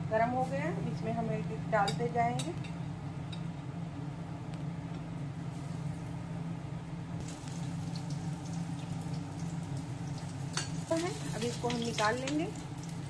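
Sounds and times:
steady low hum: 0.0s - 13.0s
food deep-frying in hot oil: 7.2s - 13.0s.

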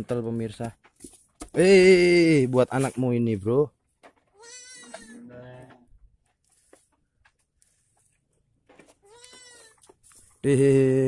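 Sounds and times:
sheep bleating: 4.4s - 5.8s, 9.0s - 9.8s.

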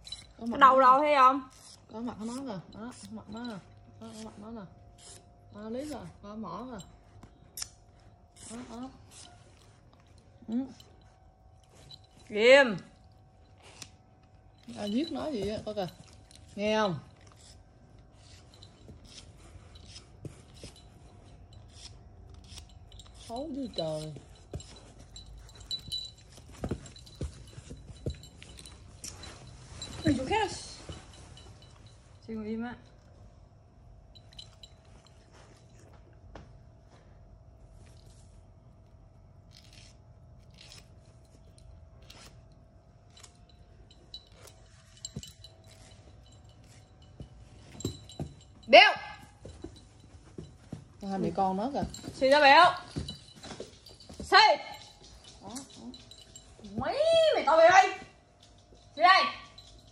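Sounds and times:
light metallic clinks: 0.0s - 4.2s, 9.1s - 37.0s, 40.6s - 59.9s
nail file rasping on claw: 1.5s - 3.2s, 5.0s - 5.9s, 18.2s - 20.1s
dog claws rasping on file: 4.9s - 5.9s, 17.2s - 20.9s, 21.6s - 24.8s.

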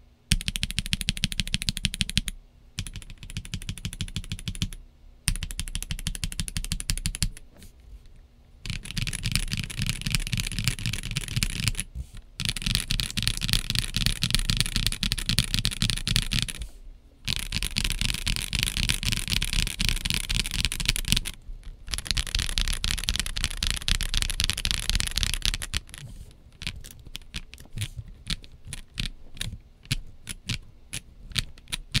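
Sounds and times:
mechanical keyboard typing: 0.3s - 7.4s, 8.6s - 16.6s, 17.2s - 32.0s.

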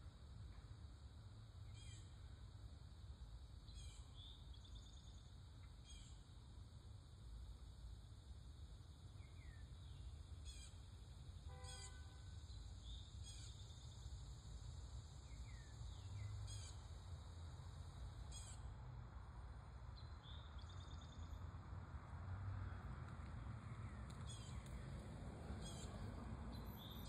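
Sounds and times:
distant traffic rumble: 15.8s - 27.0s
birds trilling and chirping: 25.6s - 27.0s.

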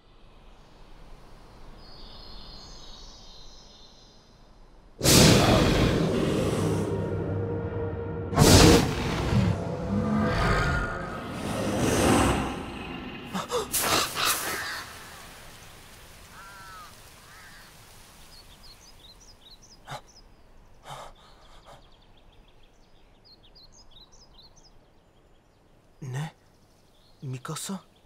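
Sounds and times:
loud rushing sound: 5.0s - 13.3s
birds chirping: 9.1s - 28.0s.

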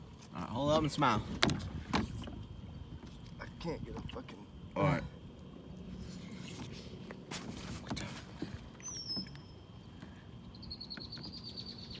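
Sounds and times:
birds trilling: 8.7s - 12.0s.

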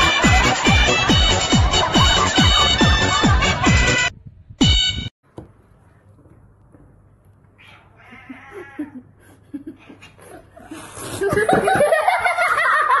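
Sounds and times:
person laughing: 0.0s - 3.7s, 8.3s - 13.0s.

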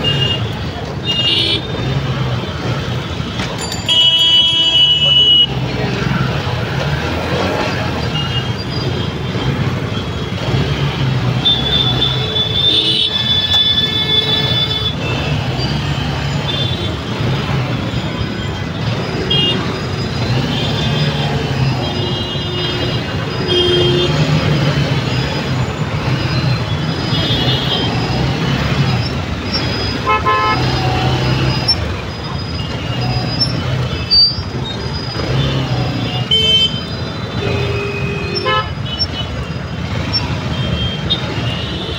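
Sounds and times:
vehicle horns honking: 0.0s - 2.0s, 3.1s - 5.7s, 11.3s - 17.5s, 18.8s - 25.4s, 26.0s - 31.8s, 35.2s - 41.9s
engines humming: 0.0s - 41.9s.

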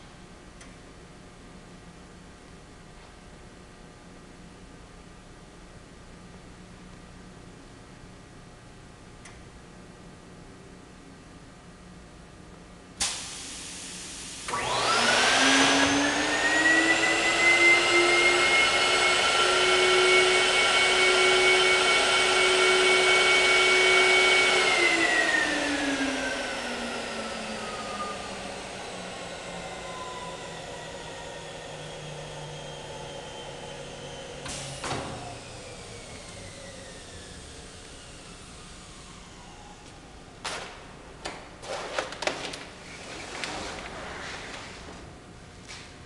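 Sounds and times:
vacuum motor whine: 13.1s - 40.4s
machine clunk: 40.4s - 42.7s.

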